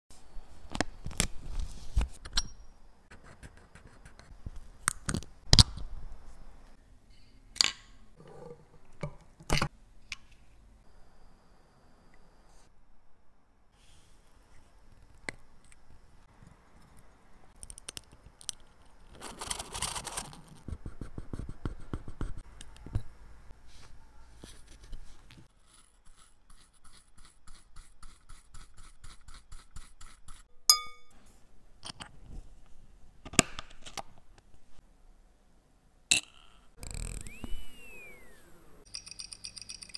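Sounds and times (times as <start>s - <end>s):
short ringing ping: 30.7s - 31.1s.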